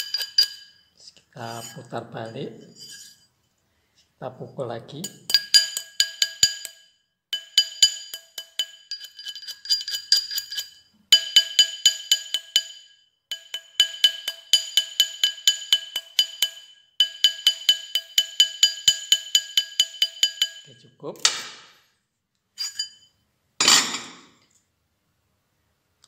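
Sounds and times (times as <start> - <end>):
hammer clinking on metal ring: 0.0 - 0.8, 5.0 - 20.7, 22.6 - 24.3.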